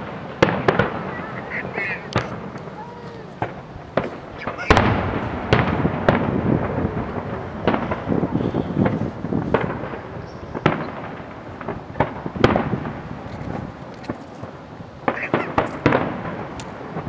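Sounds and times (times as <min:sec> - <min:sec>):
firework shells bursting: 0:00.0 - 0:17.0
rumbling echoes: 0:00.0 - 0:17.0.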